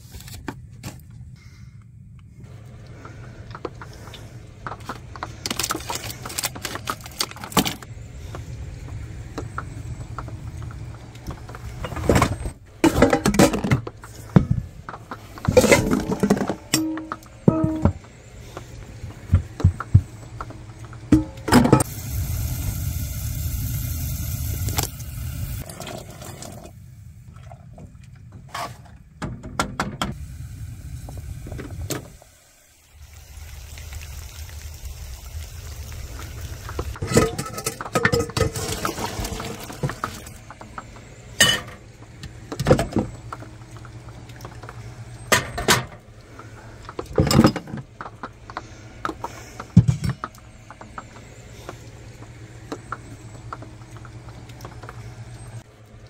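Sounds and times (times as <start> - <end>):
metal pots and utensils clanking: 12.8 - 13.8, 15.5 - 18.0, 37.0 - 39.9, 41.4 - 41.8
water hissing: 21.8 - 26.8, 30.2 - 37.0
liquid bubbling in a pot: 32.8 - 40.9.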